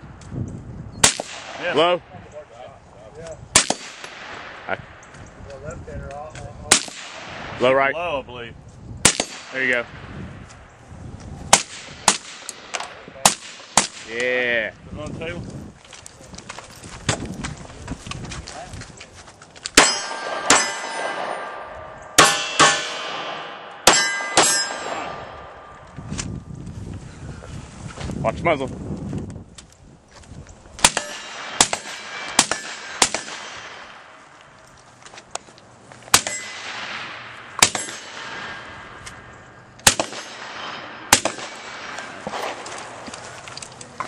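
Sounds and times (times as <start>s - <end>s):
handgun shots with metallic ring: 19.8s - 25.8s, 30.8s - 33.6s, 36.2s - 37.0s, 37.6s - 38.7s, 39.8s - 42.7s.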